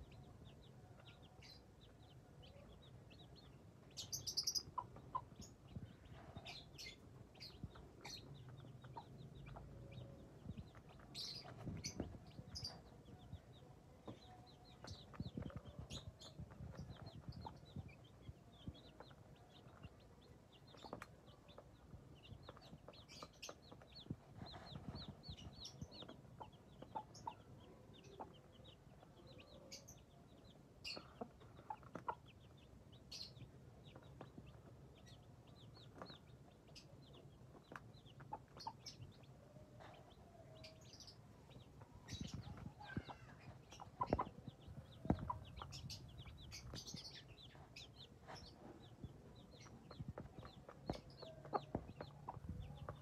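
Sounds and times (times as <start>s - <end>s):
beaks pecking on concrete: 0.0s - 53.0s
chicks peeping: 0.0s - 53.0s
hen clucking: 3.9s - 13.0s, 30.9s - 32.6s, 41.6s - 53.0s.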